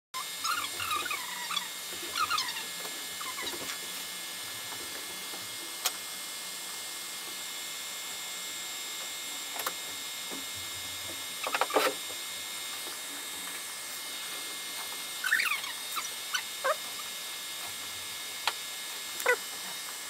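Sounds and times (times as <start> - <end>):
stepper motors whining: 0.2 - 3.8, 15.2 - 17.2.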